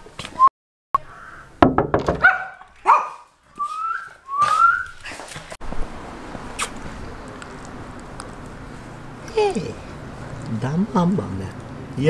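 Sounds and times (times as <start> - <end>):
glass door thuds: 1.6 - 2.3.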